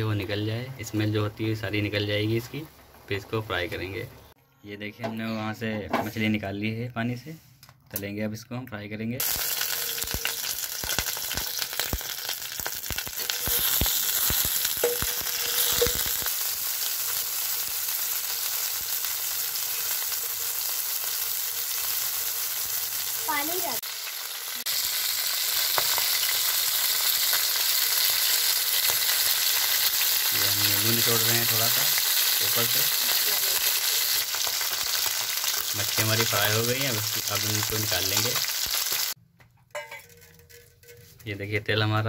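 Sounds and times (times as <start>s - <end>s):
fish sizzling in hot oil: 9.2s - 39.2s
oil popping and crackling: 9.2s - 39.2s.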